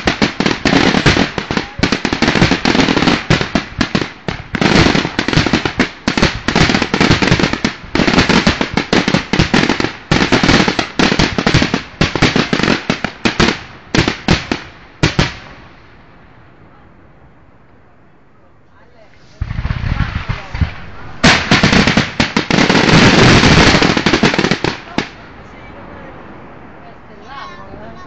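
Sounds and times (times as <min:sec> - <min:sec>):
fireworks bursting in rapid bangs: 0:00.0 - 0:15.7, 0:19.3 - 0:25.2.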